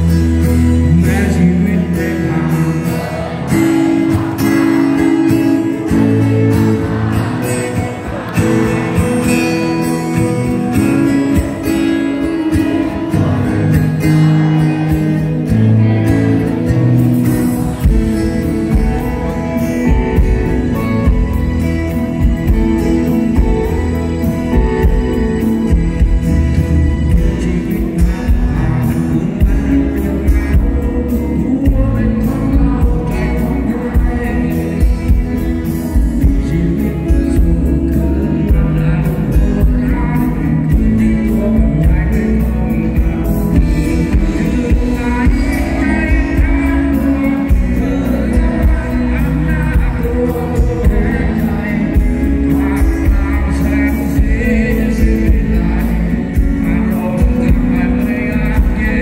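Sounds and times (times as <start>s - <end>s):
acoustic guitar: 0.0s - 59.0s
heavy bass: 0.0s - 59.0s
keyboards: 0.0s - 59.0s
man singing: 0.0s - 59.0s.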